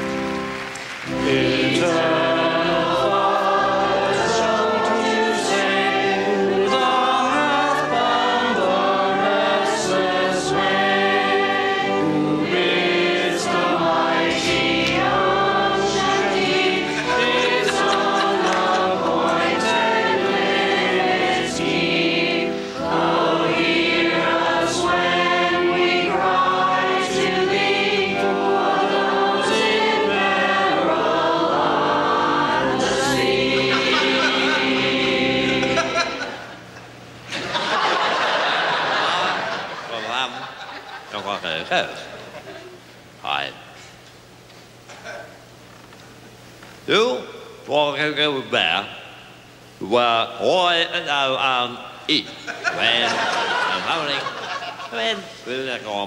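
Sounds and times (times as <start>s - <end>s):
choir singing a hymn: 1.0s - 42.9s, 52.5s - 56.0s.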